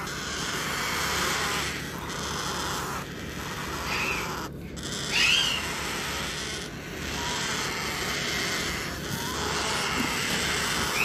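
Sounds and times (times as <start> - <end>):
parrot chick squawk: 0.0 - 11.0
parrot chicks begging calls: 0.0 - 11.0.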